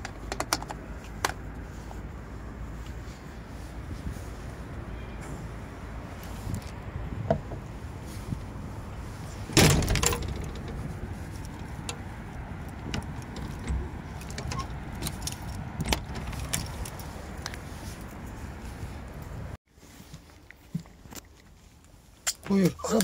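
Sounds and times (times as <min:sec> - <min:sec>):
light clicks and knocks: 0:00.0 - 0:01.4, 0:09.5 - 0:17.6
steady low rumble: 0:00.8 - 0:19.6
loud clatter of knocks: 0:09.6 - 0:10.8.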